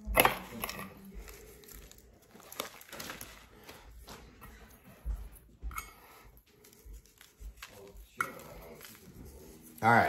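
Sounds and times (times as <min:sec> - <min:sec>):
herb rub pattering on chicken: 0:06.0 - 0:10.0.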